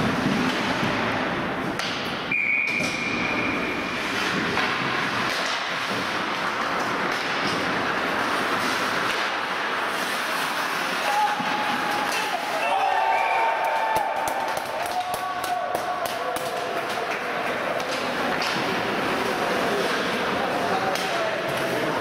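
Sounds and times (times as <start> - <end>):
hockey sticks and puck knocking: 0.0 - 12.6, 13.6 - 22.0
noisy rink background: 0.0 - 22.0
referee's whistle: 2.3 - 3.6.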